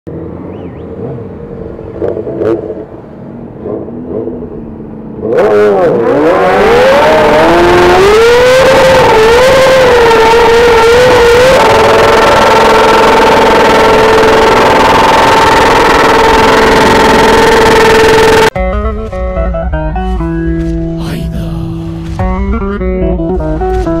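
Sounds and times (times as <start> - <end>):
motorcycle engine revving high: 1.1 - 18.6.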